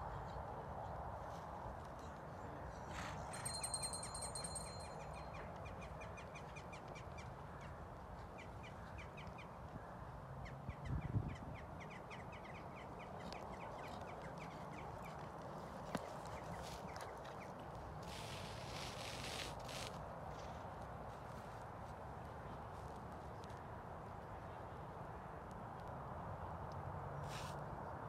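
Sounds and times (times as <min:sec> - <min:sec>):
bird calling in rattling runs: 0:03.2 - 0:05.4.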